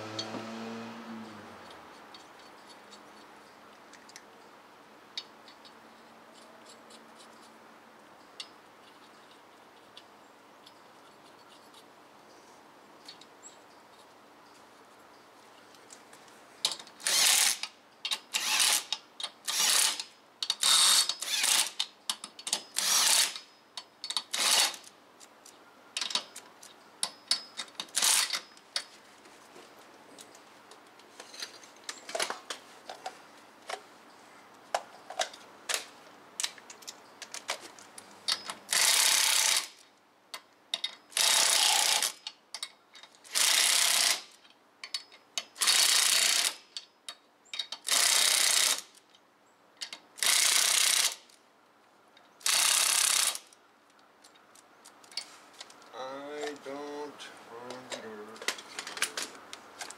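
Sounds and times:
impact wrench bursts: 17.0 - 21.8, 22.5 - 23.4, 24.2 - 24.9, 38.7 - 39.8, 41.1 - 42.2, 43.3 - 44.3, 45.6 - 46.6, 47.8 - 48.9, 50.2 - 51.2, 52.4 - 53.5.

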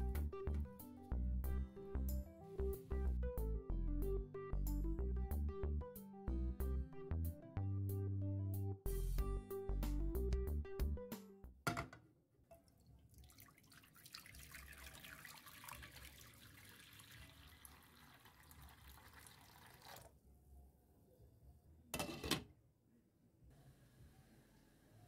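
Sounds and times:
water pouring into frying pan: 13.0 - 20.2.

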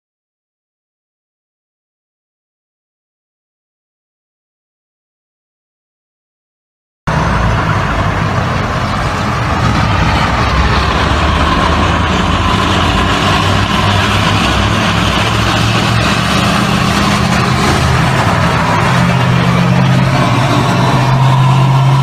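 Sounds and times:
armored vehicle engines humming: 7.1 - 22.0
road traffic noise: 7.1 - 22.0.

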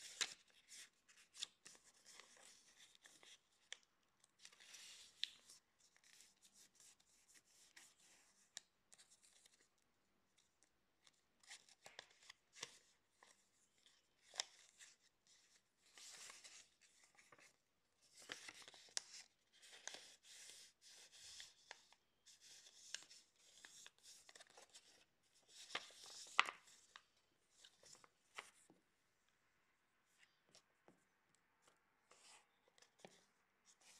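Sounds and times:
paper rustling and crinkling: 11.0 - 28.8.

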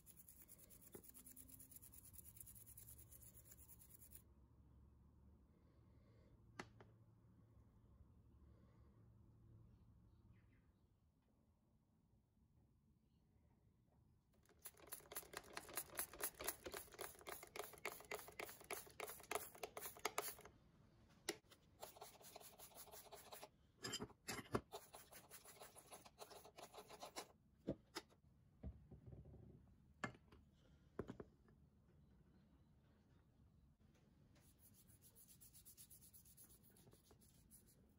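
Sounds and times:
brush scrubbing rusty steel: 14.6 - 20.5.

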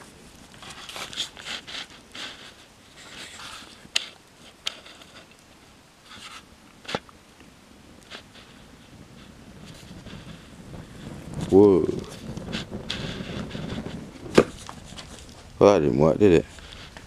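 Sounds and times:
paper and cardboard crackling in fire: 0.0 - 17.0
fire popping sharply: 7.9 - 17.0.

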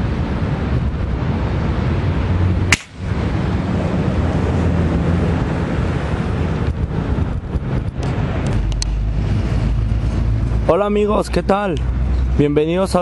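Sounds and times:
wind buffeting microphone: 0.0 - 12.4
sharp crack: 2.7 - 3.3.

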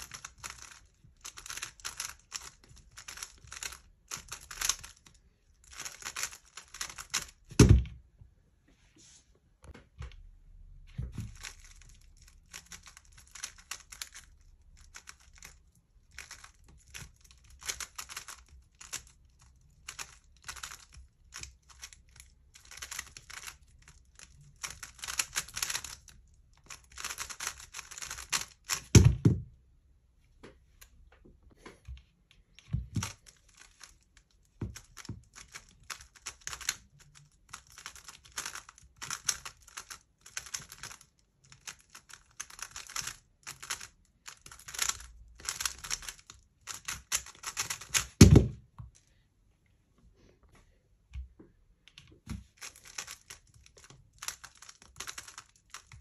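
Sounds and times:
puzzle cube clicking: 0.0 - 5.1, 5.7 - 7.5, 12.5 - 15.6, 16.2 - 19.2, 19.8 - 26.1, 26.7 - 29.2, 34.7 - 48.5, 52.6 - 56.0.

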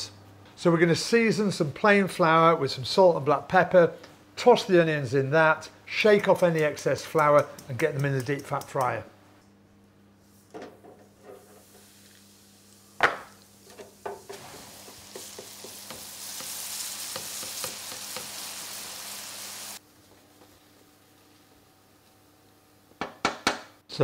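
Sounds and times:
hot oil sizzling and bubbling: 11.1 - 22.9.

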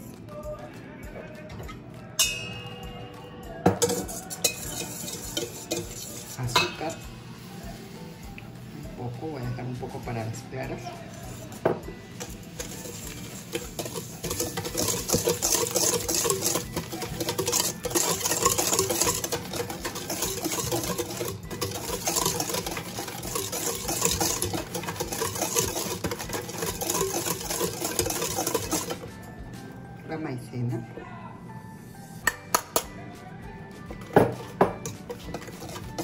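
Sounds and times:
whisk beating in a metal bowl: 3.6 - 7.9, 8.7 - 29.2, 34.0 - 36.0.

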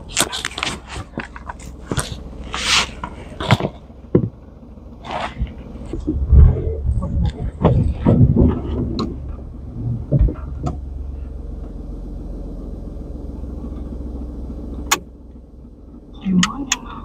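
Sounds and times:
car engine rumble inside cabin: 0.0 - 17.0
knocks and bumps: 3.0 - 4.5, 5.1 - 10.9.

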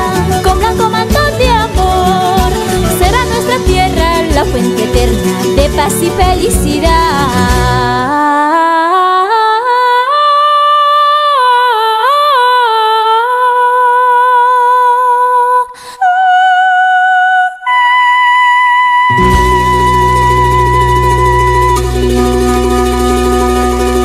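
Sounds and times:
band playing with deep bass: 0.0 - 8.1, 19.1 - 24.0
woman singing wordless melody: 0.0 - 24.0.

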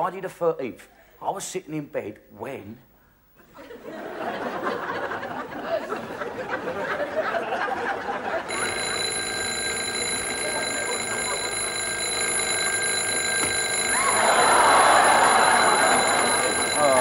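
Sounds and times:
alarm clock bell ringing: 8.5 - 17.0.

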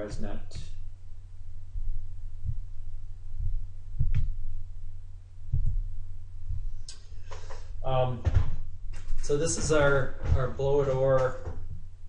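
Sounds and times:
steady low hum: 0.0 - 12.0
soft thumps: 1.5 - 11.9.

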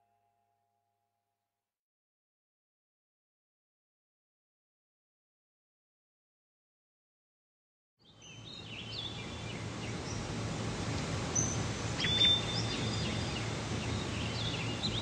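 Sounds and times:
birds chirping: 8.0 - 10.3, 10.9 - 15.0
steady hiss: 8.2 - 15.0.

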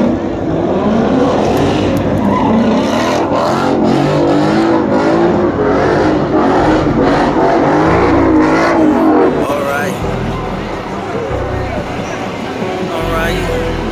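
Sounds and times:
v eight engine exhaust: 0.0 - 13.9.

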